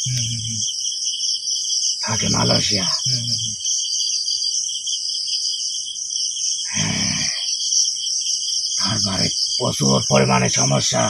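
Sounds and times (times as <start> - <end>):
short low human vocal sound: 0.0 - 0.6, 2.1 - 3.6, 6.7 - 7.4
crickets chirring: 0.0 - 11.0.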